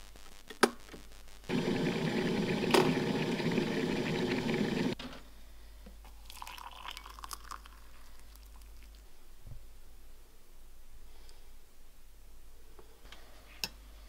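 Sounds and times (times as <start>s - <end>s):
electric kettle rumbling: 1.5s - 5.0s
water poured into mug: 6.2s - 9.0s.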